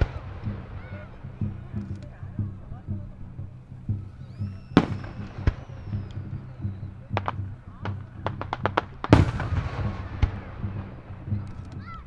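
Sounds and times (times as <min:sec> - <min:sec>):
firework crackling: 0:00.0 - 0:12.0
falling firework whistle: 0:04.2 - 0:10.2
firework shells bursting: 0:04.4 - 0:11.8.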